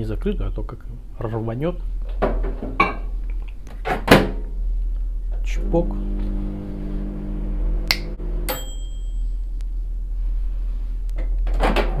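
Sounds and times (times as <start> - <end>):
microwave oven humming: 5.2 - 10.0.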